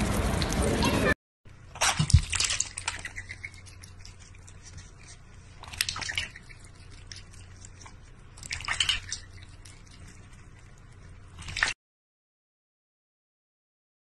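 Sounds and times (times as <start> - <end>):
cat splashing water in metal bowl: 1.7 - 4.8, 5.6 - 10.0, 11.4 - 11.8
water dripping: 1.8 - 4.6.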